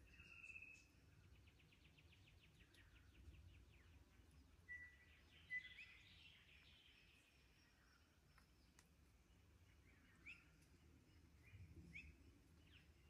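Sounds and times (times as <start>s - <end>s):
birdsong: 0.0s - 13.0s.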